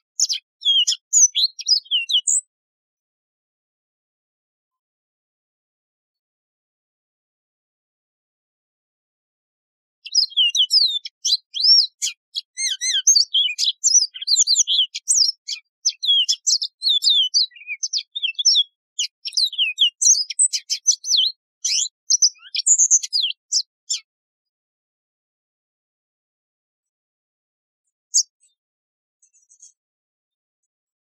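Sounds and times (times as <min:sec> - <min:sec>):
canary singing: 0:00.0 - 0:02.5, 0:10.0 - 0:24.1.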